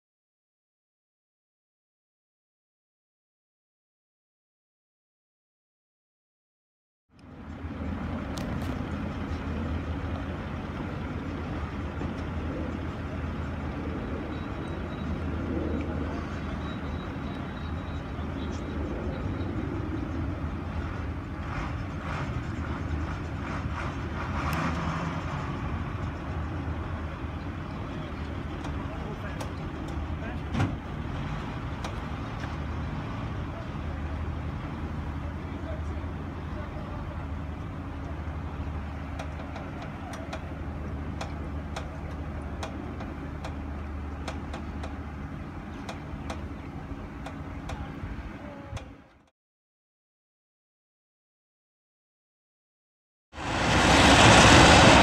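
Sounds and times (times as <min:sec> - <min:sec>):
truck engine rumbling: 0:07.1 - 0:49.3, 0:53.4 - 0:55.0.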